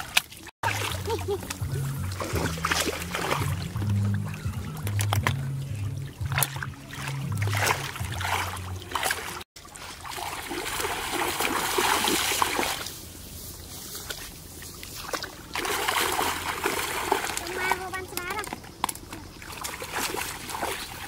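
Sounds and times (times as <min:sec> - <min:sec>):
people wading through water: 0:00.0 - 0:21.0
background music with bass line: 0:00.6 - 0:09.4.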